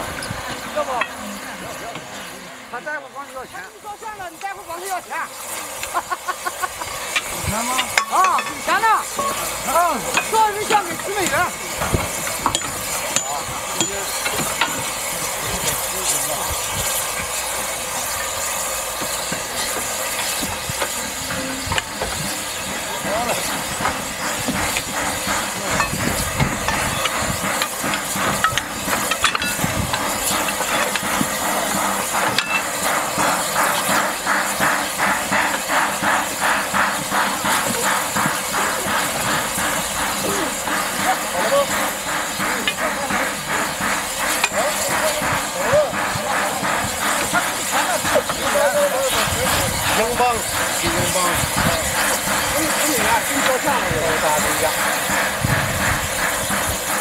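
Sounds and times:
steam engine chuffing: 0.0 - 57.0
steam hissing: 0.0 - 57.0
men talking: 0.4 - 57.0
metal clink on rail: 12.0 - 15.0, 25.7 - 31.1, 32.3 - 32.9.

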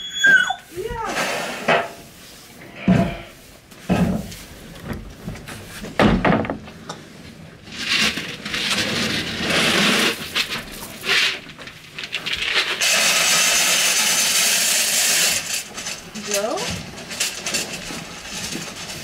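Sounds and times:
pellets scraping and rustling: 7.4 - 19.0.

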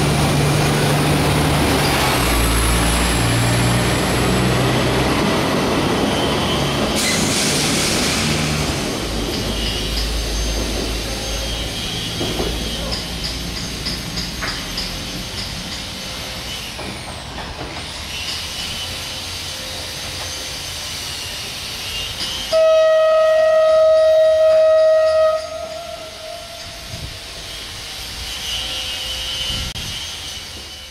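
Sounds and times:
diesel railcar pulling away: 0.0 - 30.9
train horn blast: 21.9 - 30.9.

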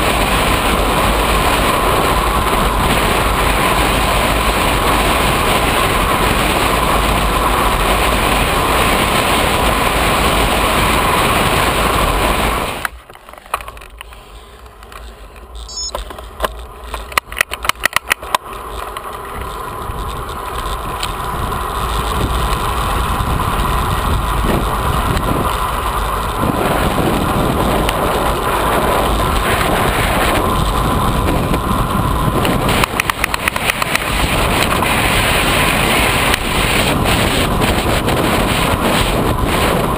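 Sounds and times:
wind buffeting microphone: 0.0 - 12.9, 19.2 - 39.9
sharp clicks: 12.8 - 19.1.

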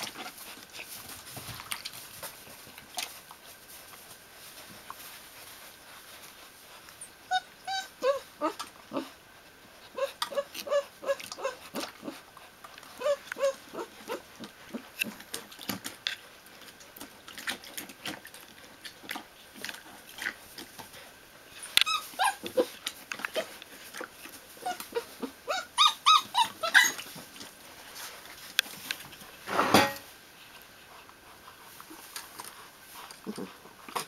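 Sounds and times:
puppies whining and squeaking: 6.9 - 12.2, 12.9 - 14.9, 21.5 - 27.4
puppies yelping: 7.0 - 9.2, 9.9 - 12.2, 12.9 - 14.9, 21.5 - 23.6, 24.6 - 27.2.

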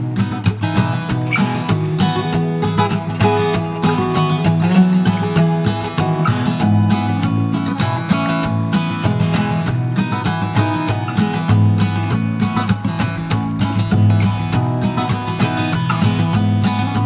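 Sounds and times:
acoustic guitar music: 0.0 - 17.0.

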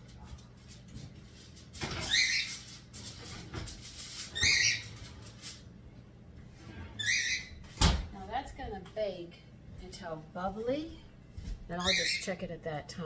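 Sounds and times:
oven rack metal squeaks: 1.8 - 5.5, 6.6 - 7.8.

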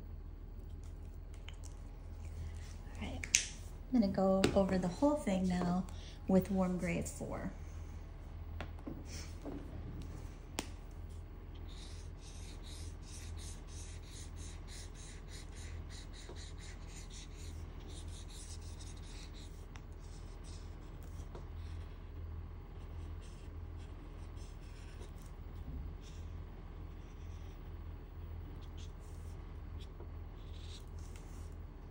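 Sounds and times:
steady low hum: 0.0 - 31.9
marker stroking on paper: 11.6 - 21.8, 28.6 - 31.6.

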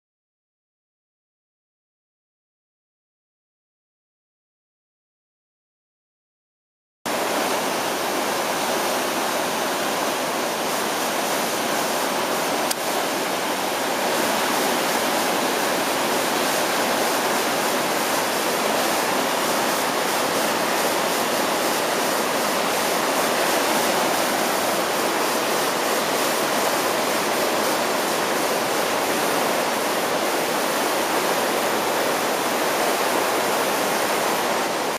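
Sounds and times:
rapids rushing over rocks: 7.1 - 34.9.

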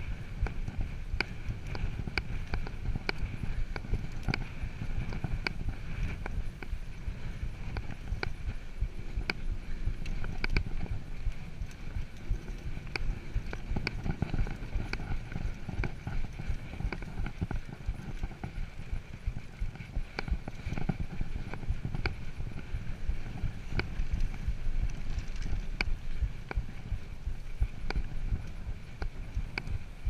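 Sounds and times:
bike clicking and rattling: 0.0 - 30.0.

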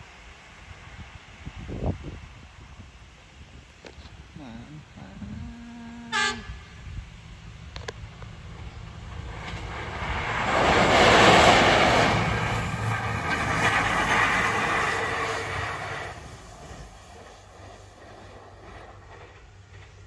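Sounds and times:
rail car wheels on rails: 5.5 - 20.0.

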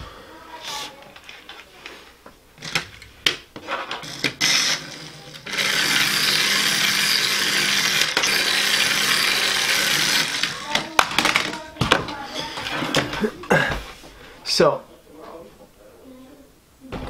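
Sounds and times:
toy car electric motor whirring: 3.9 - 11.6.

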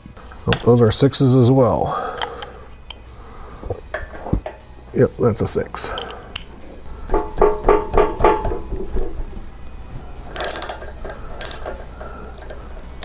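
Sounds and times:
ratchet wrench clicking: 5.9 - 6.5, 10.3 - 13.0.

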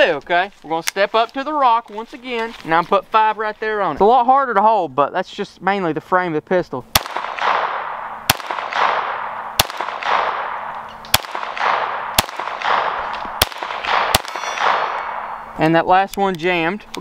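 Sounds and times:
pistol shots echoing: 6.9 - 15.5.

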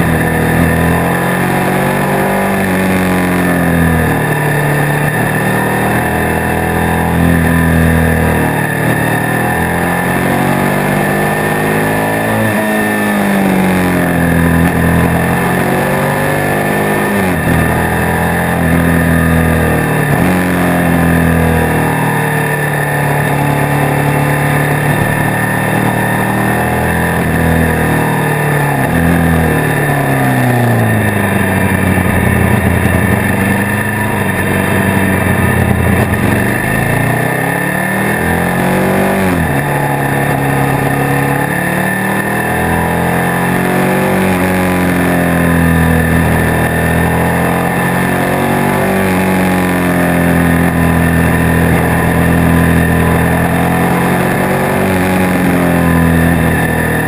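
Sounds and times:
motorcycle engine accelerating: 0.0 - 57.0
wind and road noise: 0.0 - 57.0.

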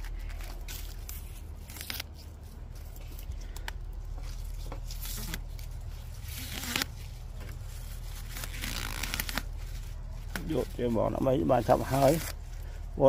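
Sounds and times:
stems snapping: 0.0 - 7.6, 10.2 - 10.6
leaves rustling: 0.0 - 13.0.

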